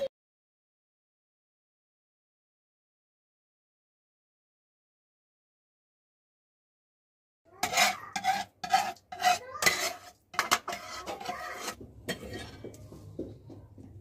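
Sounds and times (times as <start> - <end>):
metal ladle scraping frying pan: 7.6 - 12.8.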